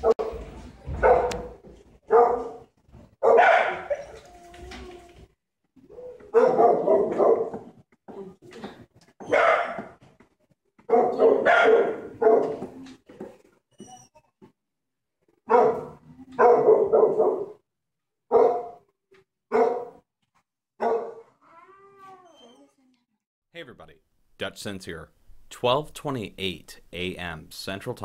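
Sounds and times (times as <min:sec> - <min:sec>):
dog barking: 0:00.0 - 0:00.4, 0:01.0 - 0:04.2, 0:06.3 - 0:07.7, 0:09.2 - 0:10.0, 0:10.9 - 0:12.7, 0:15.5 - 0:17.6, 0:18.3 - 0:18.8, 0:19.5 - 0:20.0, 0:20.8 - 0:21.3.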